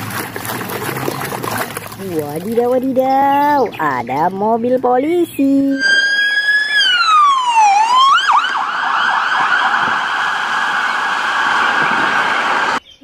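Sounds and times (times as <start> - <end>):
police siren wail and yelp: 5.8 - 12.8.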